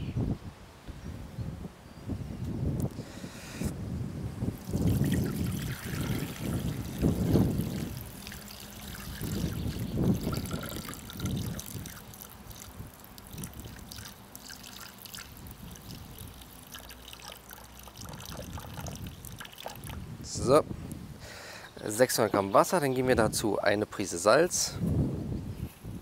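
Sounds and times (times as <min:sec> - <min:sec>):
water trickling into metal bowl: 0:04.6 - 0:20.0.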